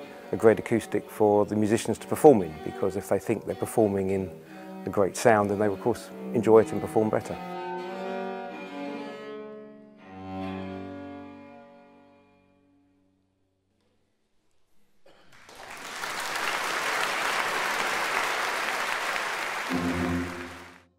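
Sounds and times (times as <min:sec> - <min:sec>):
audience applause: 0:15.3 - 0:20.9
cello bowed note: 0:19.7 - 0:20.9.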